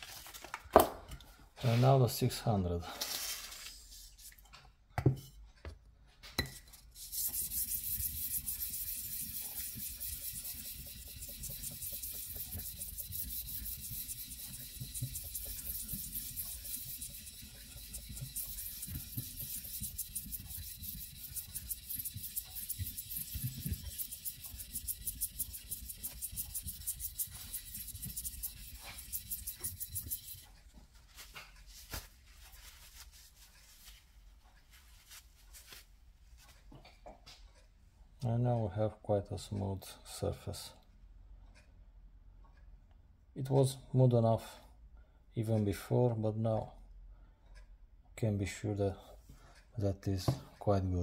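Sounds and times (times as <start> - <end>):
scratchy rubbing on sandpaper: 1.6 - 2.2, 6.9 - 30.5.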